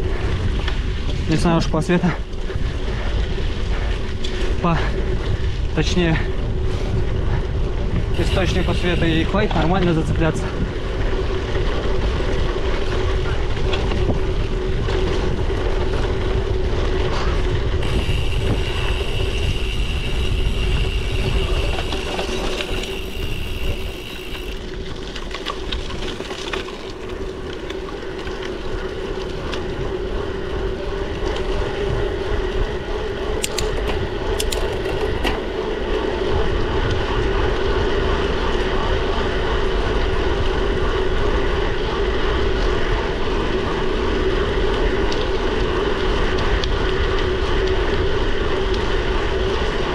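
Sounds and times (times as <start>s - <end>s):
bicycle tyre noise: 0.0s - 49.9s
wind rumbling on microphone: 0.0s - 49.9s
sharp clicks: 33.4s - 35.4s.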